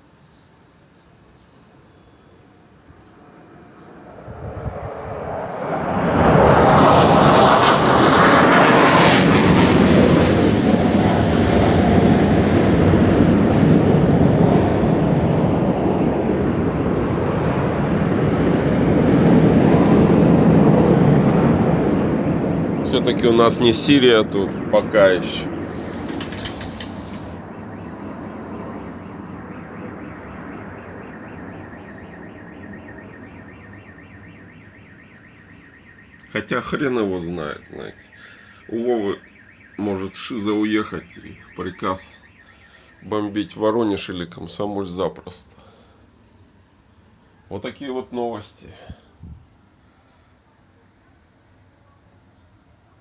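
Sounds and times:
fighter jet roaring overhead: 2.6s - 46.3s
car alarm warbling: 27.3s - 43.7s.

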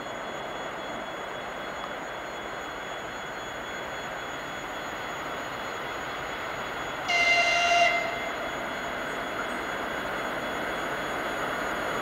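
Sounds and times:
diesel locomotive rumbling: 0.0s - 12.0s
high-pitched train horn blast: 7.0s - 8.5s.

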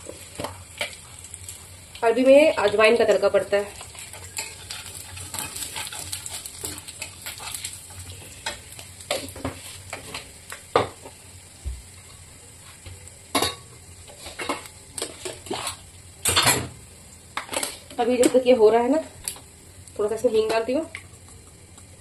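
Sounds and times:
spices sizzling in hot oil: 0.0s - 22.0s
spatula scraping pan: 3.7s - 10.3s, 14.1s - 15.8s.

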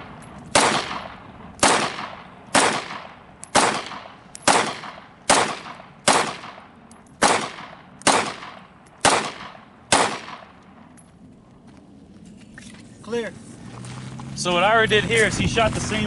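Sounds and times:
pistol shots with short echo: 0.5s - 10.6s.

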